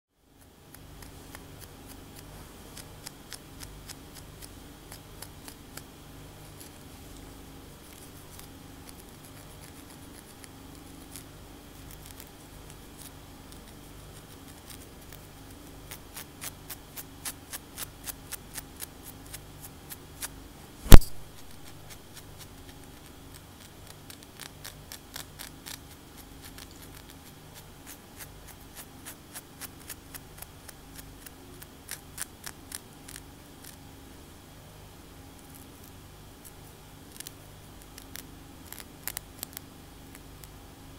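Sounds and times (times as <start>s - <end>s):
fingernails scratching scalp: 7.8s - 33.8s
sharp loud click: 20.8s - 21.4s.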